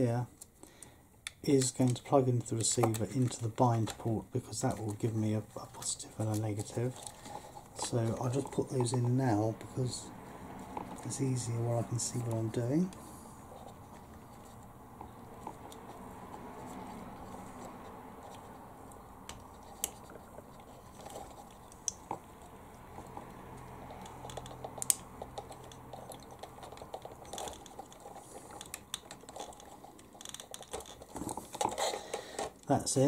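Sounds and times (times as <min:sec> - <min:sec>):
plastic connectors clicking: 0:01.2 - 0:05.0, 0:23.1 - 0:32.7.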